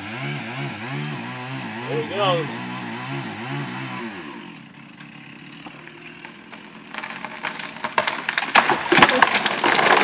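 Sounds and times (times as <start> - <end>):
chainsaw idling: 4.2 - 8.3
wood cracking as tree falls: 4.8 - 10.0.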